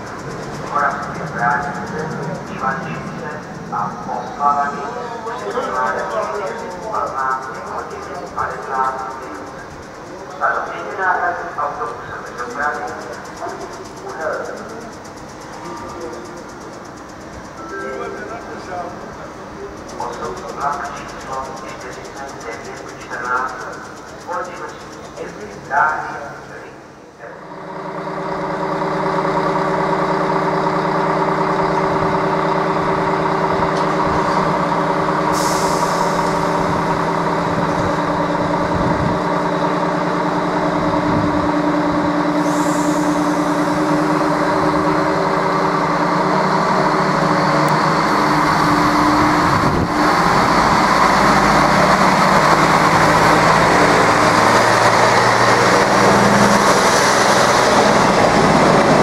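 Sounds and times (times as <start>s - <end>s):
diesel railcar engine: 0.0s - 59.0s
train wheel noise: 0.0s - 59.0s
short air hisses: 35.3s - 36.4s, 42.4s - 43.4s.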